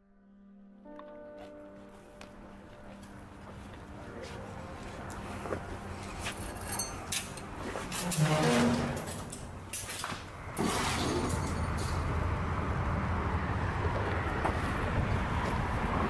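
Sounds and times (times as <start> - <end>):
metal door creaking: 6.8 - 12.1.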